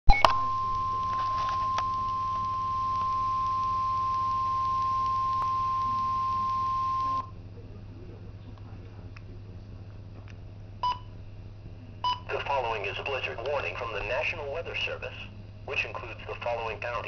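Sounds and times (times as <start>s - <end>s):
steady alarm tone: 0.1s - 7.3s.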